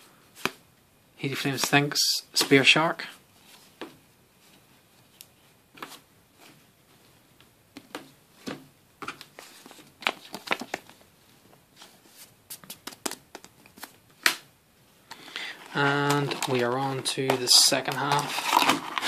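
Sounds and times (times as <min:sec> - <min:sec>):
trading cards sliding and flicking: 0:11.8 - 0:14.4
foil wrapper crinkling: 0:15.7 - 0:19.0.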